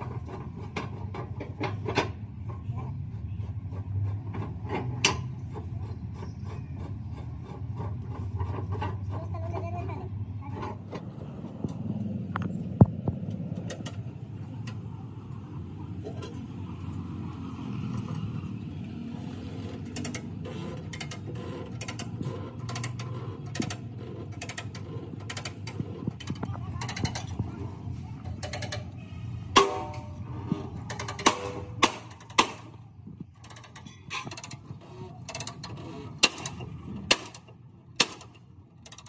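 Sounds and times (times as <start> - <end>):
hydraulic jack clicking and creaking: 0.0 - 14.9, 17.8 - 39.0
sharp metal knock: 29.5 - 30.1.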